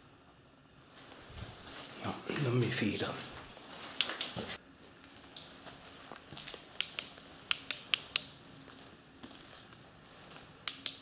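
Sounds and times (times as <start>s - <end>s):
sharp dry clicks: 6.8s - 8.4s, 10.6s - 11.0s.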